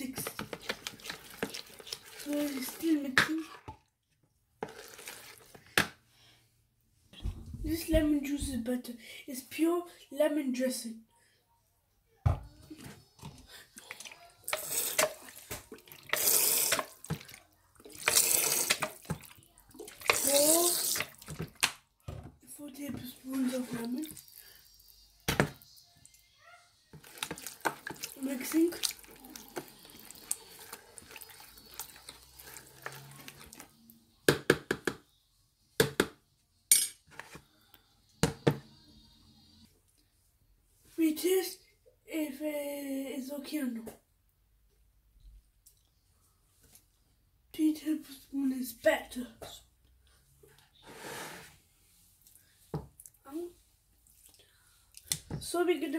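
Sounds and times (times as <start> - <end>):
marinade sloshing in bowl: 0.0 - 4.0, 4.6 - 5.8, 13.6 - 21.8, 27.0 - 33.7
small wet clicks: 54.0 - 55.3.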